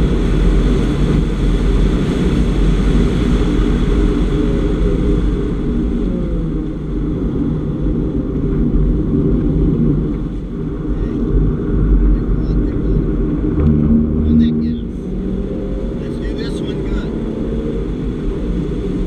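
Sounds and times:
car engine pulling hard: 0:00.0 - 0:19.0
road and wind noise: 0:00.0 - 0:19.0.

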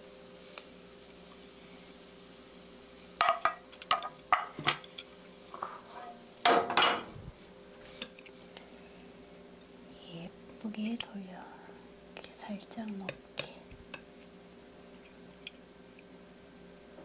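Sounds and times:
wooden utensils knocking on a pan: 0:03.2 - 0:04.8.

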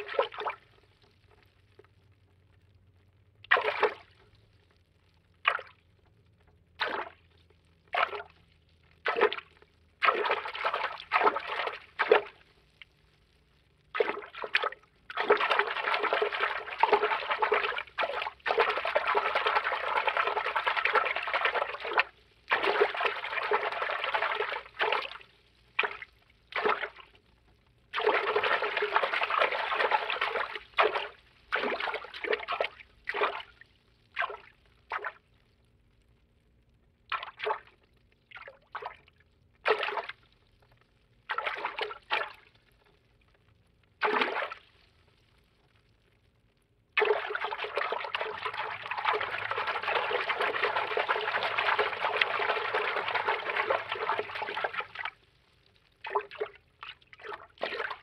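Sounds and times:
churning water: 0:00.0 - 0:00.8, 0:03.4 - 0:04.2, 0:06.8 - 0:07.2, 0:07.9 - 0:08.4, 0:09.0 - 0:12.5, 0:13.8 - 0:27.2, 0:27.8 - 0:33.5, 0:39.6 - 0:40.2, 0:41.3 - 0:42.4, 0:44.0 - 0:44.7, 0:47.0 - 0:55.2, 0:55.9 - 0:58.0
short water swishes: 0:13.9 - 0:27.2, 0:27.9 - 0:33.5, 0:47.0 - 0:55.2.

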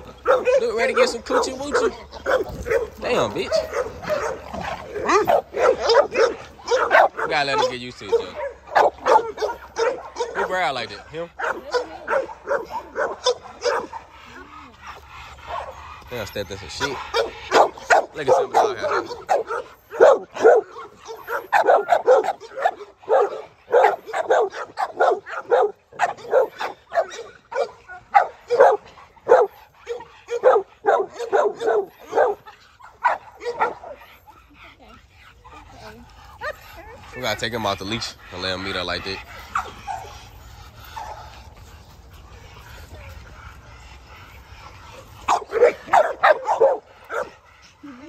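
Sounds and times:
dog barking rapidly: 0:00.2 - 0:14.1, 0:16.8 - 0:34.1, 0:36.4 - 0:40.1, 0:45.3 - 0:47.4.

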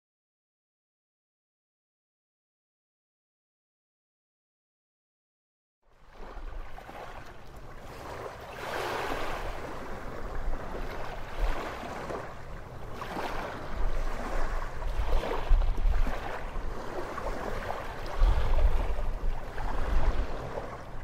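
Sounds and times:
sea waves washing in: 0:06.0 - 0:21.0
wind rumble on microphone: 0:07.8 - 0:21.0.

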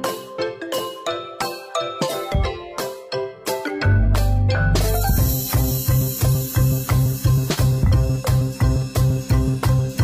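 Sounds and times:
melody of evenly spaced notes: 0:00.0 - 0:06.6
deep bass: 0:03.9 - 0:05.8.

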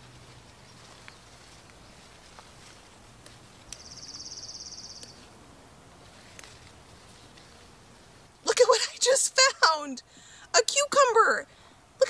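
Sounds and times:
insect trilling: 0:03.8 - 0:05.2.

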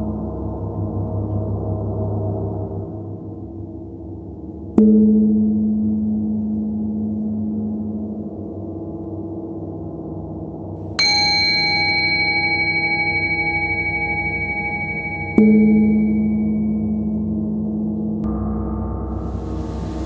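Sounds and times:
ambient soundtrack: 0:00.0 - 0:20.0
higher bright gong ringing: 0:11.0 - 0:17.3, 0:18.2 - 0:20.0
low gong ringing: 0:11.0 - 0:20.0.

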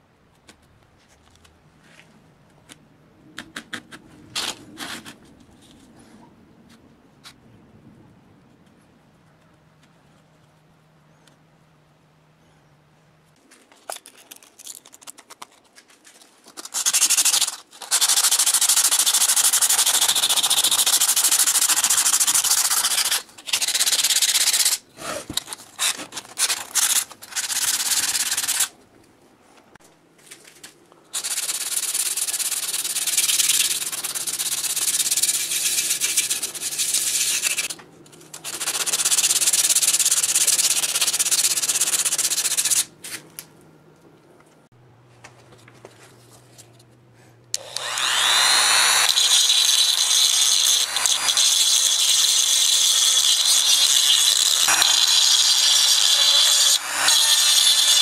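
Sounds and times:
sandpaper rubbing: 0:16.5 - 0:28.7, 0:31.2 - 0:43.2.

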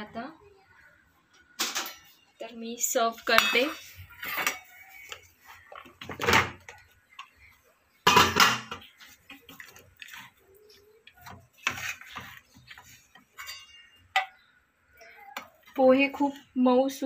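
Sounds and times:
steel dishes clinking: 0:03.3 - 0:04.8, 0:13.3 - 0:14.4
wooden spatula scraping a pan: 0:08.8 - 0:14.0.

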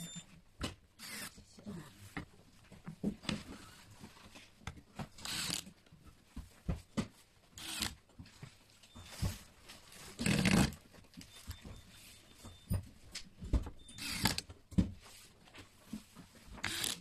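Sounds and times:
electric screwdriver buzzing: 0:01.0 - 0:01.3, 0:05.2 - 0:05.6, 0:07.6 - 0:08.0, 0:14.0 - 0:14.4, 0:16.6 - 0:17.0.

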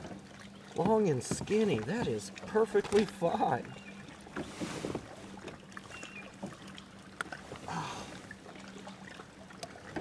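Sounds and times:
rustling and clicks of fish handling: 0:00.8 - 0:03.4.

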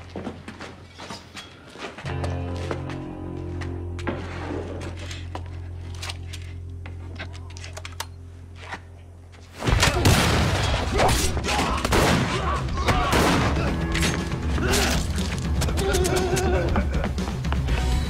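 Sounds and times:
action music: 0:10.8 - 0:18.0.

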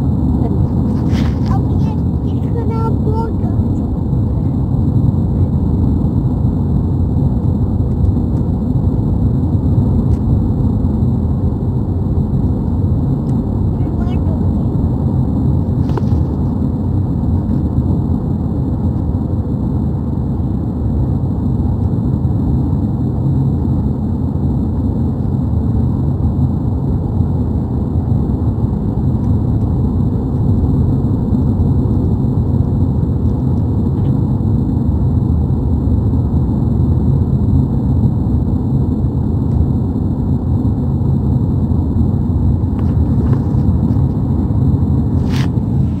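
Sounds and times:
car interior road rumble: 0:00.1 - 0:19.1, 0:40.5 - 0:46.0.

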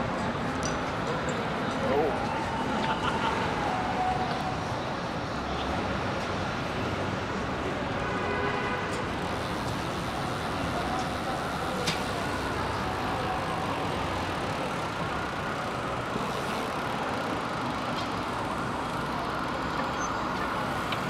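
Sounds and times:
city street traffic: 0:00.0 - 0:21.0
distant siren wailing: 0:01.8 - 0:05.2, 0:09.9 - 0:20.9.

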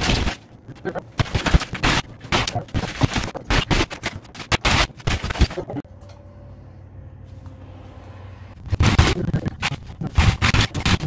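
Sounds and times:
crumbling debris: 0:00.0 - 0:05.8.

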